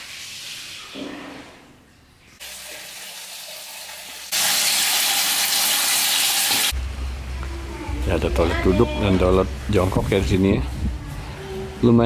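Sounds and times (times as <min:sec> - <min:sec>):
water running from tap: 0:02.4 - 0:06.8.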